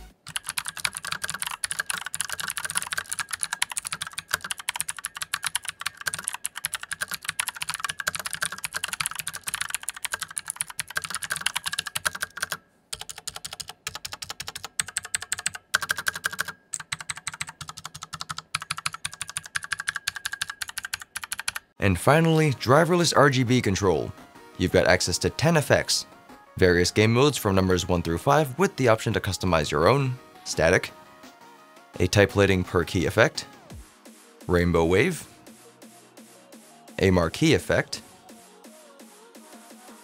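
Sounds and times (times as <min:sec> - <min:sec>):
mechanical keyboard clicks: 0:00.3 - 0:21.7.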